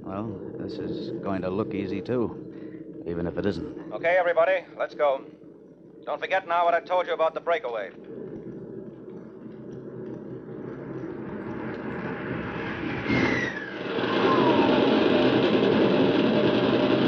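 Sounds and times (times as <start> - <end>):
aircraft engine noise: 0.0 - 17.0
falling whistle: 12.8 - 15.4.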